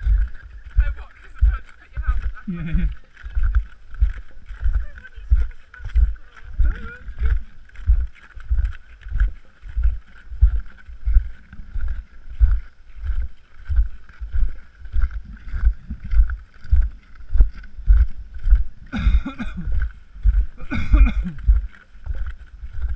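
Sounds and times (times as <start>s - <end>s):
footsteps on ice and snow: 0.0s - 22.9s.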